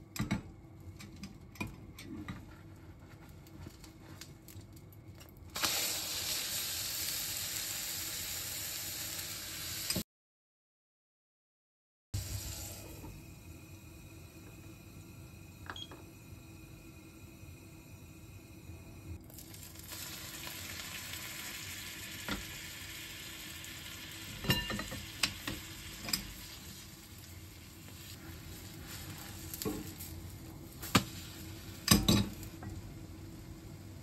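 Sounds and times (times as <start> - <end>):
food sizzling in a pan: 5.5 - 10.0, 12.2 - 15.6, 19.3 - 34.0
cookware clattering: 24.4 - 25.1.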